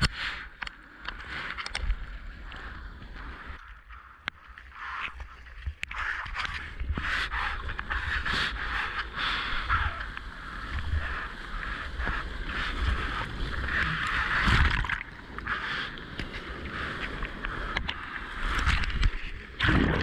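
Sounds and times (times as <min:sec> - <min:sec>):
sea water rushing and splashing: 0:00.0 - 0:20.0
wind rumble on microphone: 0:05.6 - 0:20.0.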